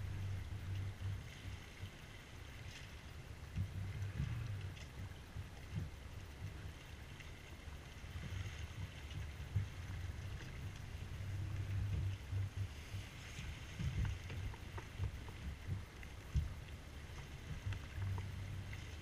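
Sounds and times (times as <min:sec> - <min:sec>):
water hissing along a hull: 0:00.0 - 0:19.0
wind buffeting microphone: 0:08.1 - 0:19.0.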